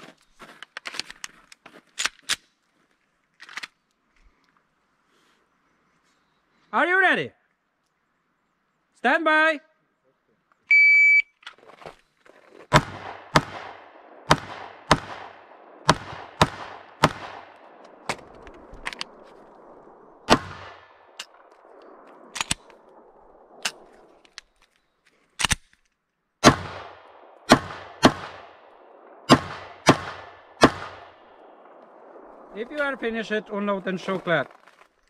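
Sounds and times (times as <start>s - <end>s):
pistol shots with echo: 12.7s - 18.2s, 20.3s - 21.4s, 26.4s - 32.3s.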